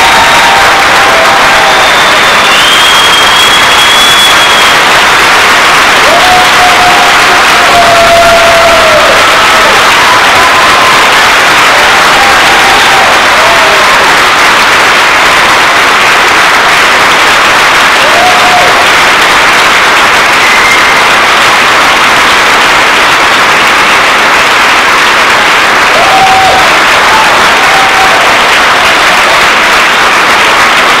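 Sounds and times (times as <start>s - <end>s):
audience clapping: 0.0s - 31.0s.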